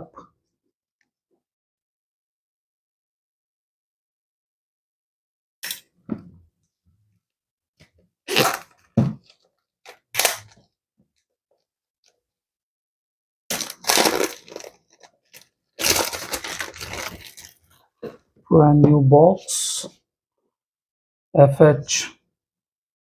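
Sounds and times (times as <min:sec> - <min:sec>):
plastic wrapping crinkling: 0:13.5 - 0:17.8.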